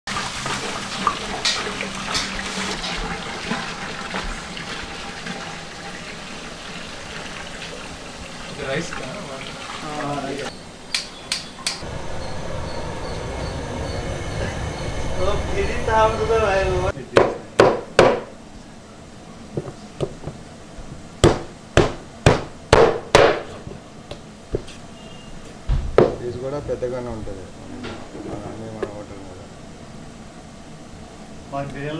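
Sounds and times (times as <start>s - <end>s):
water pouring into metal pot: 0.1s - 10.5s
cleaver chopping on wooden block: 21.2s - 23.5s.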